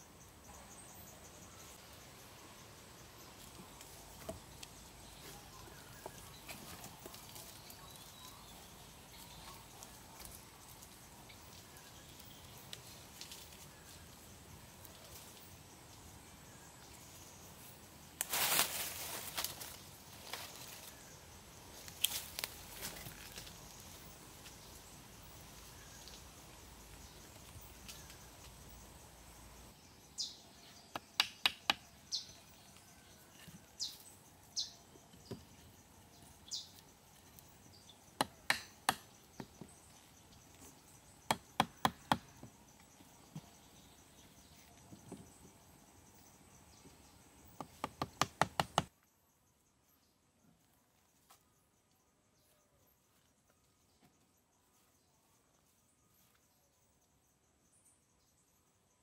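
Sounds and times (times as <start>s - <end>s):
insects: 0.0s - 59.0s
hatchet tapping wooden posts: 30.9s - 32.0s, 35.1s - 35.5s, 38.1s - 39.7s, 41.2s - 42.6s, 47.5s - 49.0s.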